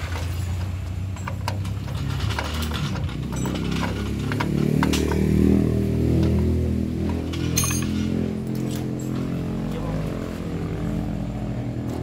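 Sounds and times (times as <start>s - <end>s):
low engine-like hum: 0.0s - 12.0s
metallic jingle: 7.4s - 9.2s.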